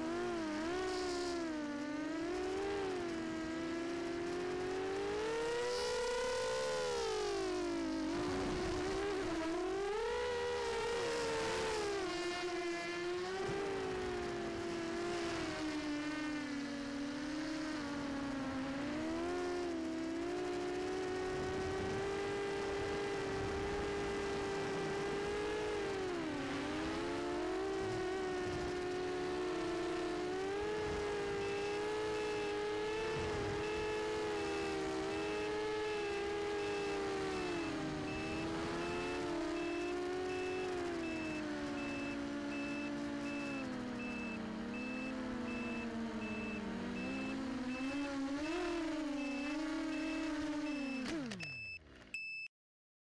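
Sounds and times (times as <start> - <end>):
quadcopter motors whining: 0.0 - 52.2
high electronic beep: 33.6 - 52.5.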